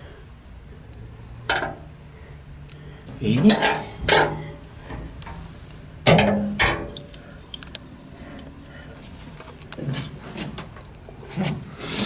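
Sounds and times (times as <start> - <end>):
steel parts clanking: 3.4 - 5.4.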